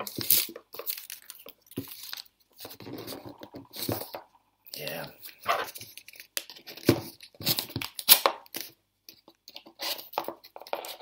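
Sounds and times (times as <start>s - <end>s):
cardboard and tape tearing: 0.0s - 4.2s, 5.4s - 8.8s
cardboard crinkling: 0.0s - 8.8s.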